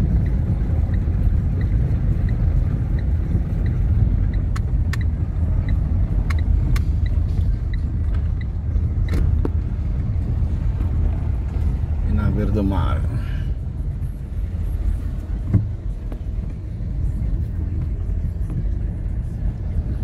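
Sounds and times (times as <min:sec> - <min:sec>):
faint regular ticking: 0:00.0 - 0:10.1
sharp clicks and rattles: 0:00.0 - 0:11.8
car rumbling over cobblestones: 0:00.0 - 0:20.0.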